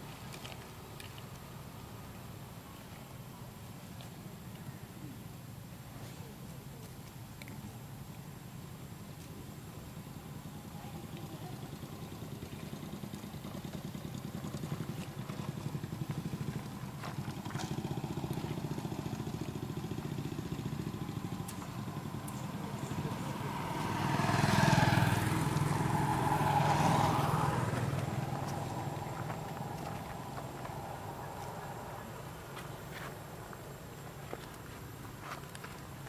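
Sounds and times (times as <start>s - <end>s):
vehicle engine passing by: 11.0s - 33.7s.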